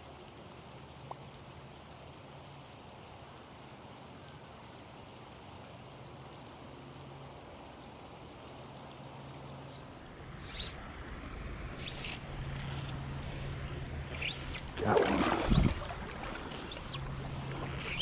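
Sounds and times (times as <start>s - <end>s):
creek water running over gravel: 12.3s - 18.0s.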